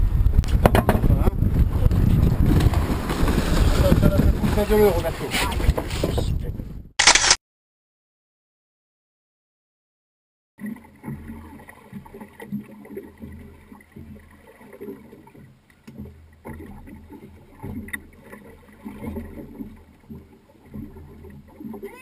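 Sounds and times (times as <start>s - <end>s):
low rumble: 0.0s - 5.1s
water slapping boat hull: 0.1s - 6.6s, 10.6s - 22.0s
sharp clicks: 7.0s - 7.4s.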